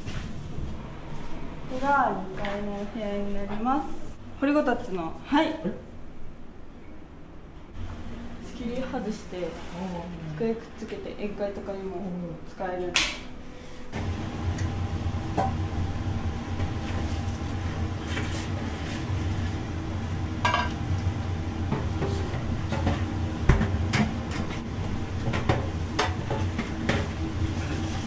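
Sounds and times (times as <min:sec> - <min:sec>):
low machine hum: 0:00.0 - 0:28.0
dishes clinking: 0:20.5 - 0:20.8.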